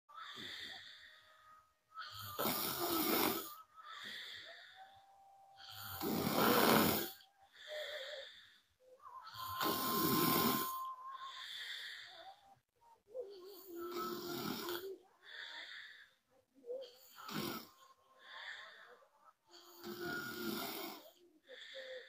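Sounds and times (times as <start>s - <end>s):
woman snoring: 0.2s - 12.5s, 13.3s - 16.2s, 16.8s - 18.9s, 19.5s - 22.0s
thin whistle in breaths: 7.6s - 8.6s, 9.3s - 12.4s.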